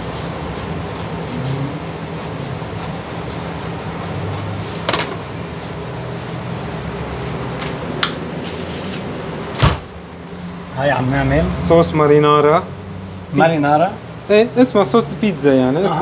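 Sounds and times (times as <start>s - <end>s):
kitchen equipment humming: 0.0s - 12.6s.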